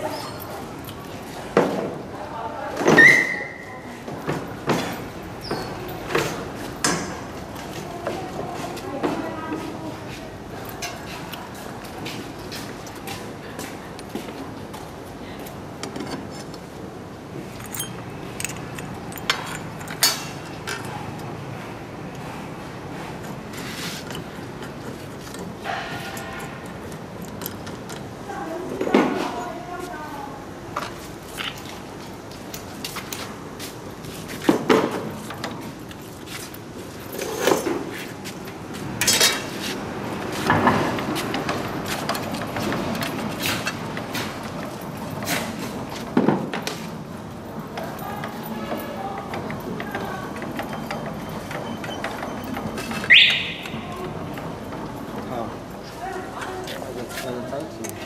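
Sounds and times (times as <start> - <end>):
light metal clinks: 17.6 - 20.8
saw blade clanking and scraping: 23.5 - 26.6.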